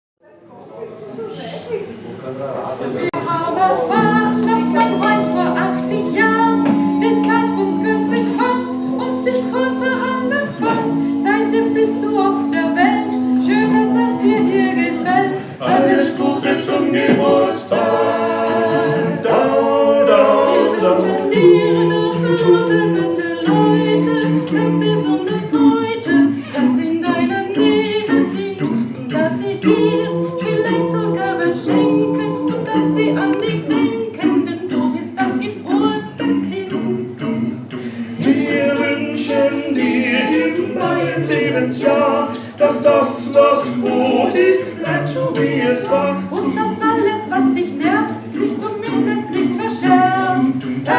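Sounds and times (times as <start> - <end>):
a cappella vocal quartet: 3.0 - 50.9.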